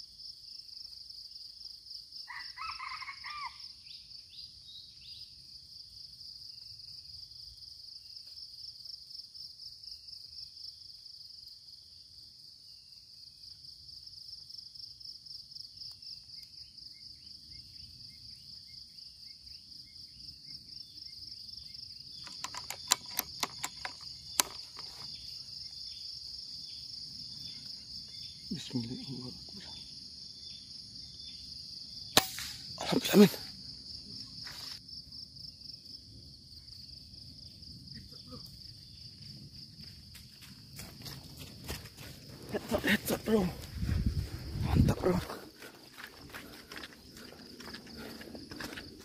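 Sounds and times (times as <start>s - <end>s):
insects trilling: 0.0s - 49.0s
sharp clicks and knocks: 22.2s - 25.1s.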